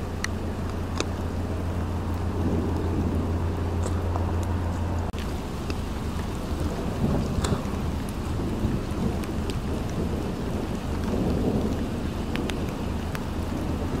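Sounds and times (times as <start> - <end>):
low rumble of thunder: 0.0 - 14.0
rain drops ticking close by: 0.0 - 14.0
rain hissing: 0.0 - 14.0.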